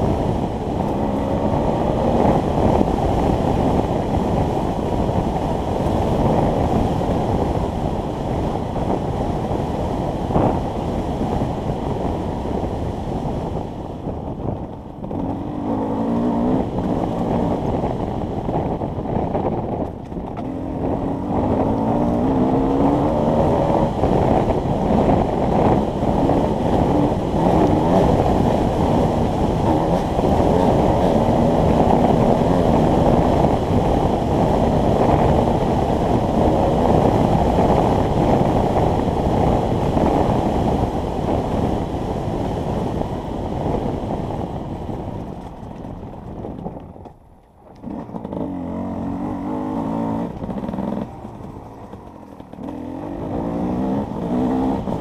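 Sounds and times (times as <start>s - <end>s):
wind buffeting microphone: 0.0s - 55.0s
dirt bike engine revving: 20.4s - 40.5s, 47.8s - 55.0s.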